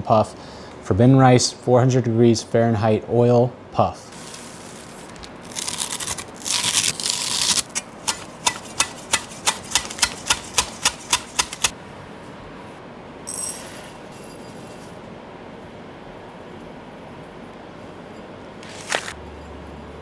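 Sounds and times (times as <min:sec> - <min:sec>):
dry seaweed rustling: 0:04.1 - 0:07.8
knife chopping on wooden board: 0:08.1 - 0:11.7.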